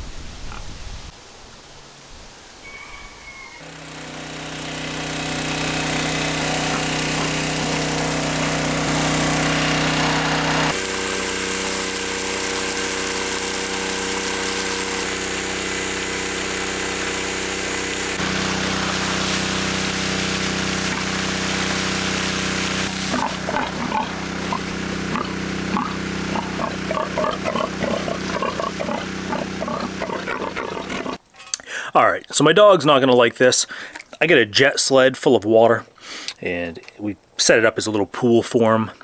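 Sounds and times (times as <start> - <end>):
engine running a water pump: 3.6 - 31.2
water jet hissing: 3.6 - 31.2.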